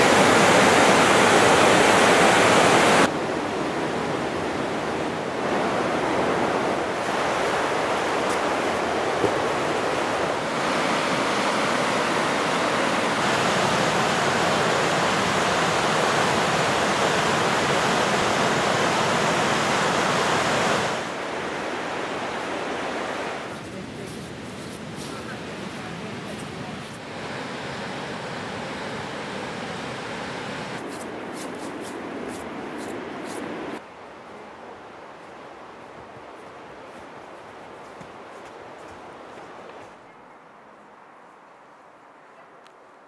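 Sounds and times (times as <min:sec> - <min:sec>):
rushing river rapids: 0:00.0 - 0:03.2, 0:04.8 - 0:30.9.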